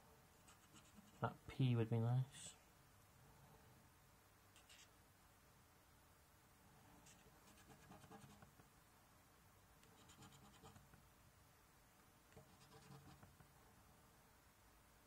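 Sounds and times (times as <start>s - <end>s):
scratchcard being scratched: 0.4s - 1.3s, 4.6s - 4.9s, 7.0s - 8.5s, 10.0s - 10.8s, 12.4s - 13.2s.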